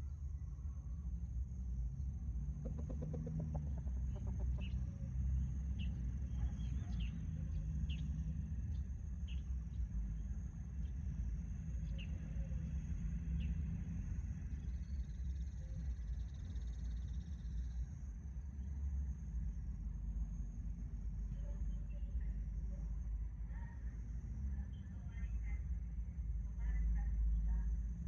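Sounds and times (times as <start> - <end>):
low rumble: 0.0 - 8.1
rooster clucking trill: 2.6 - 4.7.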